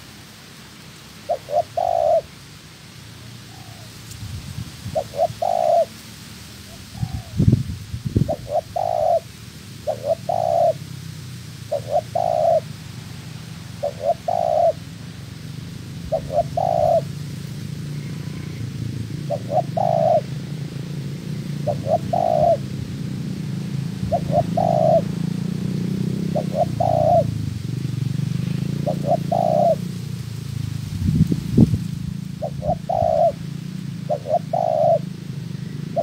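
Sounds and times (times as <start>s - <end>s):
dove cooing: 1.2s - 2.4s, 4.9s - 5.9s, 6.7s - 7.5s, 8.2s - 10.9s, 11.7s - 12.8s, 13.6s - 15.2s, 15.9s - 27.4s, 28.8s - 30.0s, 32.3s - 36.0s.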